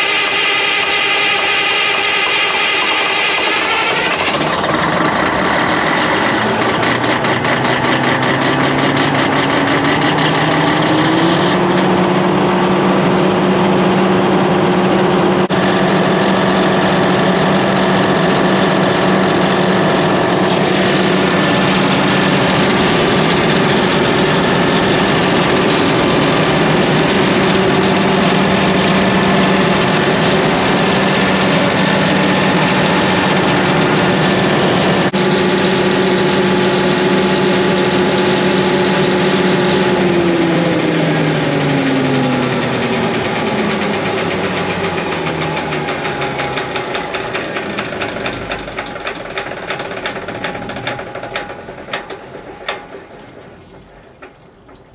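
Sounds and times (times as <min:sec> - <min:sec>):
diesel generator engine running: 0:00.0 - 0:54.9.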